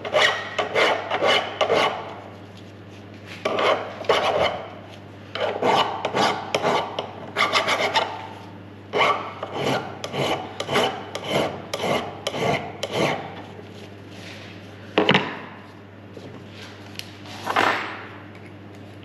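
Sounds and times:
hand file rasping on metal: 0:00.0 - 0:02.1, 0:03.5 - 0:04.7, 0:05.4 - 0:08.2, 0:08.9 - 0:13.3.

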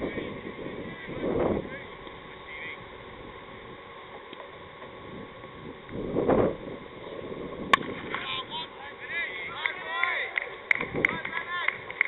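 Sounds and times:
wind on microphone: 0:00.0 - 0:03.9, 0:04.6 - 0:08.6, 0:10.7 - 0:11.9.

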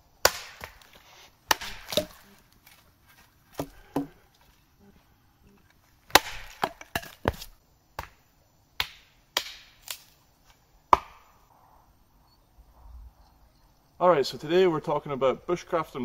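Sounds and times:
hatchet chopping wood: 0:00.2 - 0:02.8, 0:03.5 - 0:04.2, 0:06.1 - 0:08.2, 0:08.8 - 0:10.1, 0:10.9 - 0:11.3.

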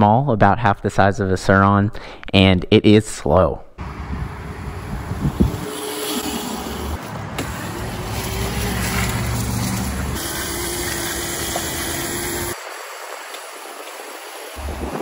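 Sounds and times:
road noise rumble: 0:03.8 - 0:15.0
electric motor whine: 0:04.3 - 0:15.0.

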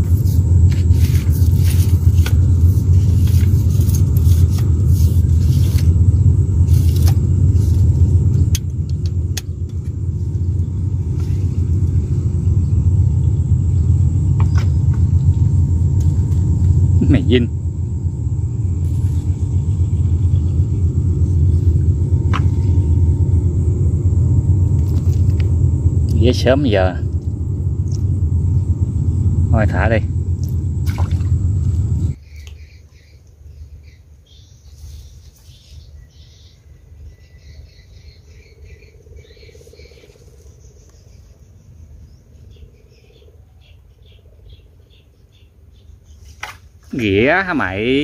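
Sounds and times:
steady buzz: 0:00.0 - 0:32.2
wind buffeting microphone: 0:00.0 - 0:32.2
low rumble: 0:00.0 - 0:33.0
birds calling: 0:00.0 - 0:48.0
insects chirping: 0:00.0 - 0:48.0.

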